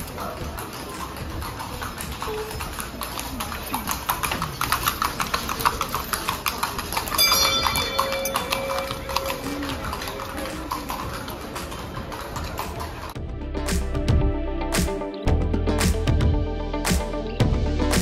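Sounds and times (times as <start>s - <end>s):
horse hooves on street: 0.0s - 13.2s
music: 7.1s - 18.0s
held tone: 7.2s - 10.0s.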